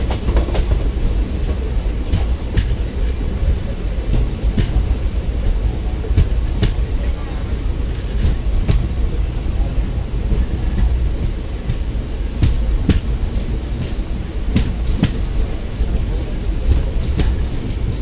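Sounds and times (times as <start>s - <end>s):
train rumble: 0.0s - 18.0s
wind: 0.0s - 18.0s.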